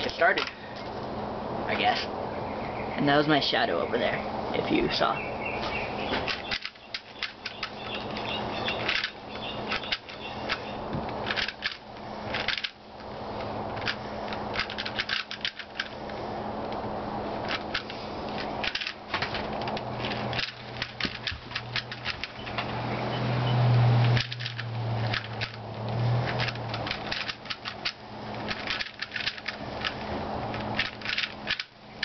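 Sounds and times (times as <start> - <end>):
puzzle cube clicking: 6.3 - 12.8, 13.8 - 15.9, 19.6 - 22.6, 24.1 - 31.7.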